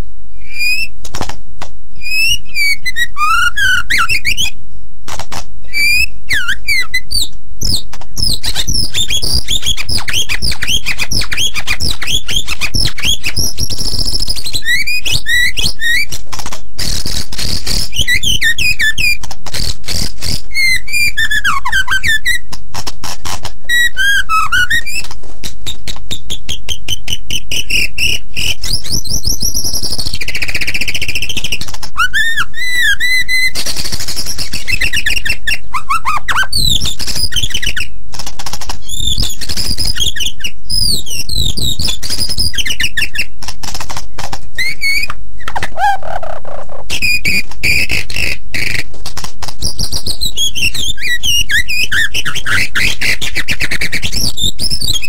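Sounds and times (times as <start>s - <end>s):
songbird singing: 0.0s - 1.0s, 2.0s - 4.6s, 5.7s - 16.1s.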